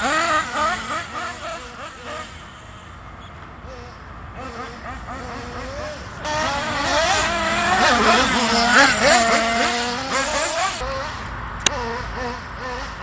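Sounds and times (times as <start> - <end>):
toy car motor whining: 0.0 - 2.9, 3.7 - 13.0.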